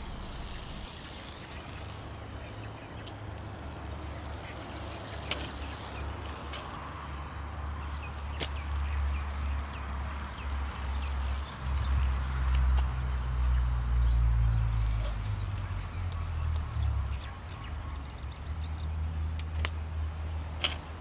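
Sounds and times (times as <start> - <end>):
low rumble: 0.0 - 2.4.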